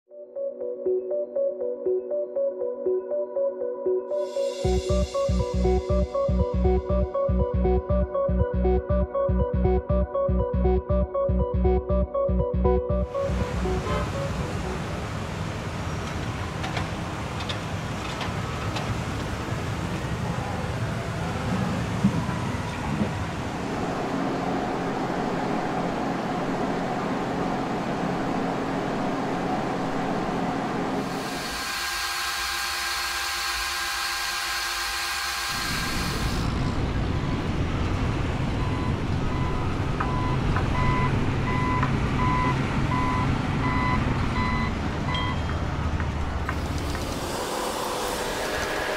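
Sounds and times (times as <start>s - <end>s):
road noise: 13.1s - 31.2s, 35.6s - 48.9s
heavy truck engine rumble: 13.2s - 31.0s, 36.4s - 48.9s
paint spray gun hissing: 31.1s - 36.5s.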